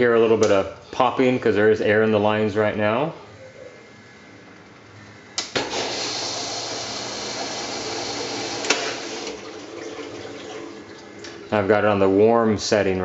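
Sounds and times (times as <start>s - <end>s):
valve click: 5.3s - 5.8s
water rushing into washing machine: 5.6s - 11.7s.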